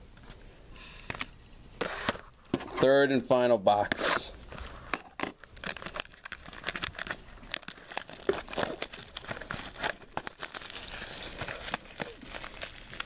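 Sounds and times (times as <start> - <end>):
plastic shrink wrap tearing: 5.4 - 13.0.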